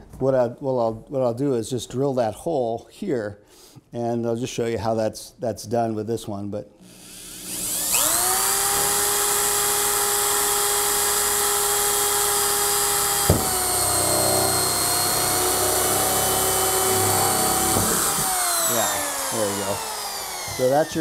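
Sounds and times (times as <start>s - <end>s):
power drill whining: 6.8s - 21.0s.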